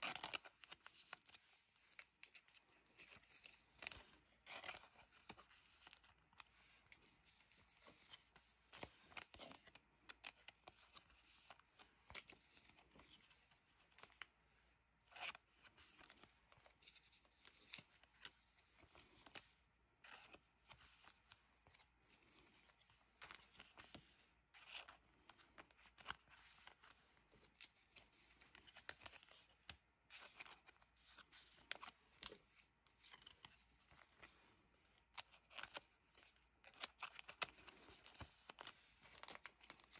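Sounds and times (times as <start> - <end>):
plastic sleeves crinkling: 15.1 - 39.9.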